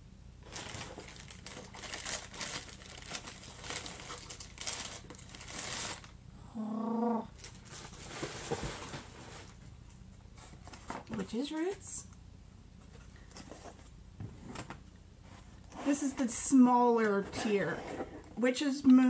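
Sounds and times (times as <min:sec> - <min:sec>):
paper and cardboard rustling: 0:00.4 - 0:06.1, 0:07.4 - 0:09.6.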